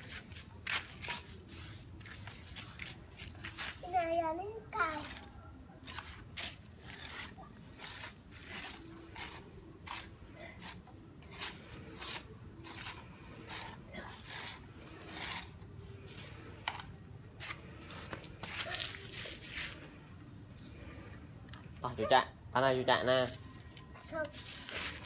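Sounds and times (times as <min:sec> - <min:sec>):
hands scraping sand: 0:05.9 - 0:20.0.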